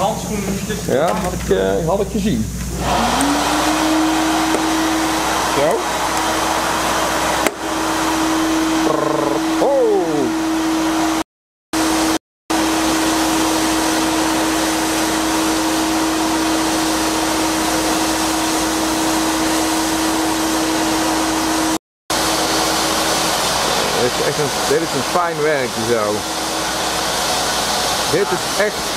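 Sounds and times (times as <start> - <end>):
sandblaster air hissing: 11.8 - 28.9.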